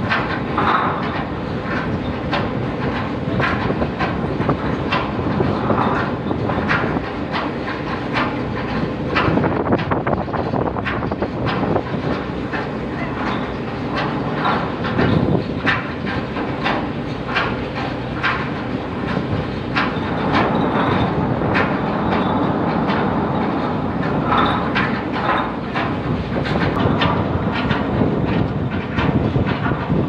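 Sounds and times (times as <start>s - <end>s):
machinery hum: 0.0s - 30.0s.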